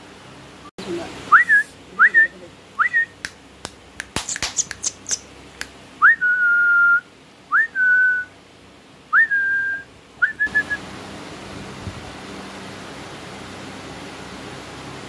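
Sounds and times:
person whistling: 1.3s - 3.2s, 6.0s - 8.3s, 9.2s - 10.8s
sharp clicks: 3.2s - 5.8s.

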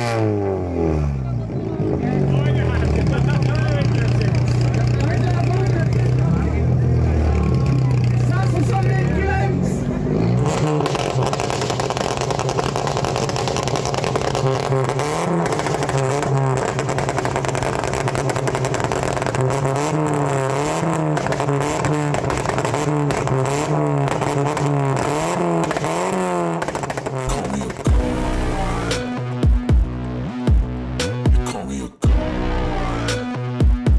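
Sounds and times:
car engine revving: 0.0s - 33.9s
exhaust pops and crackles: 2.4s - 6.6s, 10.4s - 28.1s.

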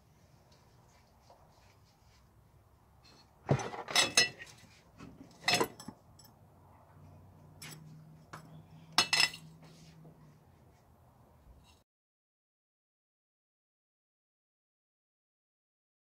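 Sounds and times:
metal clanking on a workbench: 3.2s - 6.3s, 9.0s - 9.5s.

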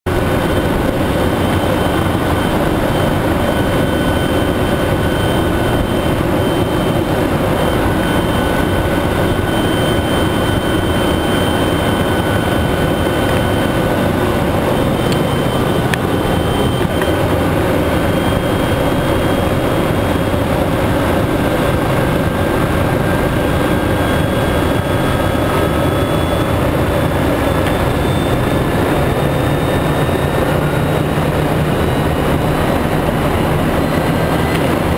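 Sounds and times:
helicopter engine and rotor: 0.0s - 34.9s
faint high whines: 0.1s - 34.9s.

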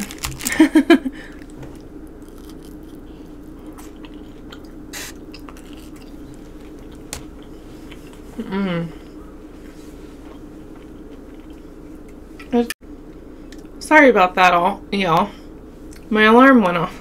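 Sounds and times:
person chewing: 1.3s - 8.4s, 9.0s - 12.5s.

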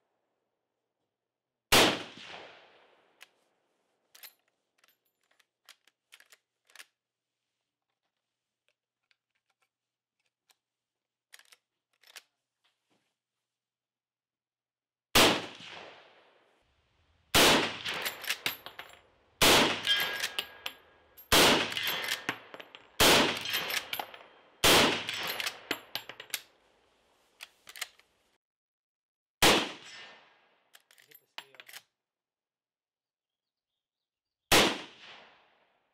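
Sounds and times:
rifle shots: 1.7s - 3.0s, 15.2s - 16.2s, 17.3s - 18.7s, 19.4s - 25.7s, 29.4s - 30.1s, 34.5s - 35.4s.

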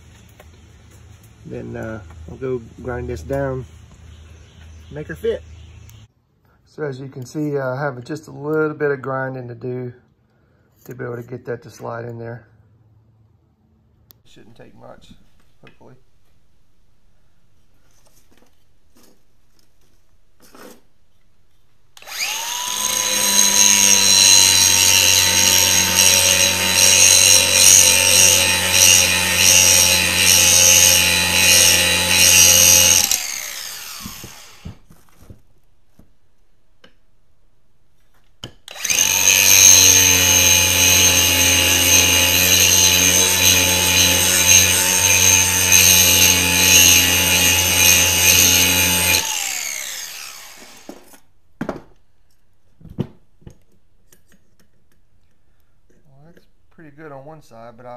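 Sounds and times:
angle grinder grinding steel: 22.0s - 34.9s, 38.6s - 51.3s.

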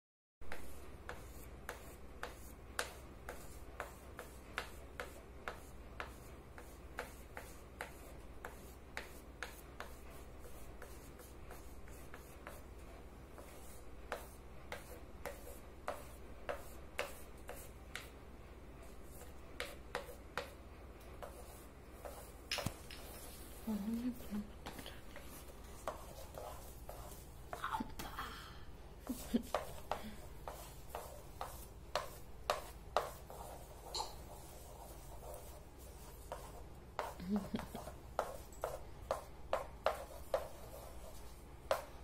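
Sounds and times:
oil pastel scratching on paper: 0.5s - 18.2s, 18.8s - 20.6s, 21.2s - 27.7s, 29.0s - 42.0s.

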